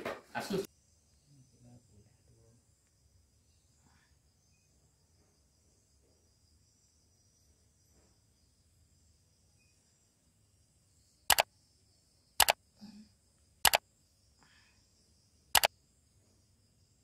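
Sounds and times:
mouse double clicks: 11.3 - 11.5, 13.6 - 13.8.

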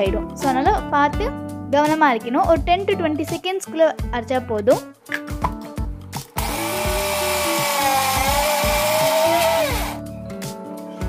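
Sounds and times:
background music with a beat: 0.0 - 11.0
electric mixer grinder running: 6.3 - 10.0.

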